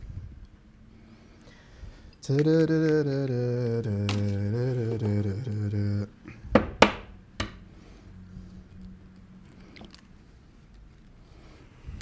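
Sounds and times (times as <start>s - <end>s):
person humming: 2.2s - 6.4s.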